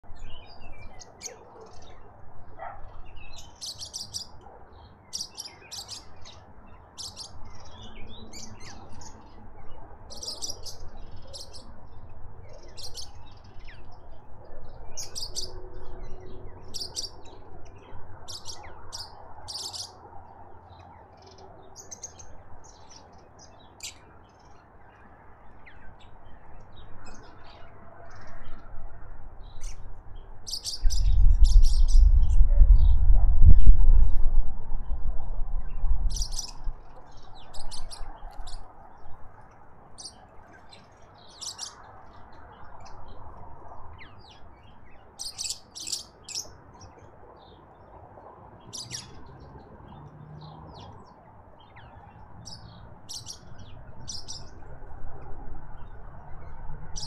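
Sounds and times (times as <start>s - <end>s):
small birds chirping: 0.0s - 28.6s, 29.4s - 33.0s, 36.1s - 48.0s, 48.6s - 54.7s.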